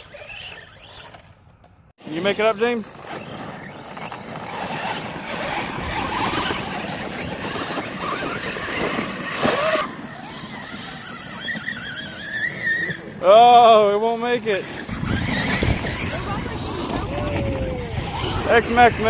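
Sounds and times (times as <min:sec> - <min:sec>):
electric motor whine: 0:00.0 - 0:19.0
tyres spinning spraying dirt: 0:02.0 - 0:19.0.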